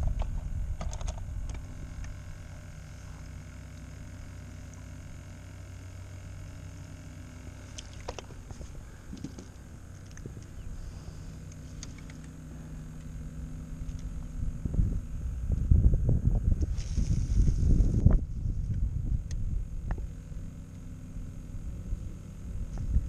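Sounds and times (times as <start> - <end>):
water and air rumbling: 6.0 - 20.4.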